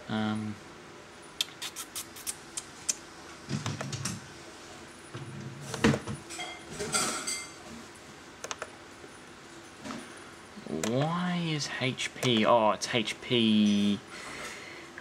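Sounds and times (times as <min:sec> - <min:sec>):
laptop keys clicking: 0:08.4 - 0:08.7.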